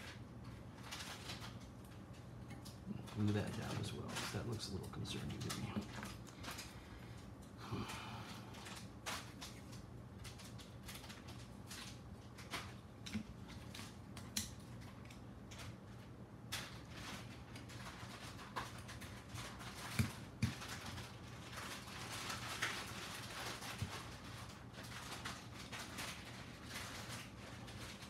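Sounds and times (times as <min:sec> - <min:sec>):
rustling: 0:00.0 - 0:28.0
steady low hum: 0:00.0 - 0:28.0.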